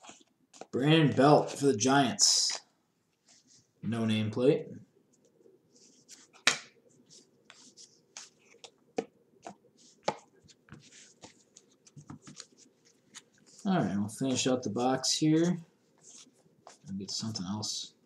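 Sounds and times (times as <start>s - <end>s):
cards sliding softly: 3.2s - 3.7s, 5.7s - 6.4s, 7.0s - 8.8s, 9.4s - 14.5s, 15.4s - 17.6s
cards clicking and tapping: 8.2s - 10.3s.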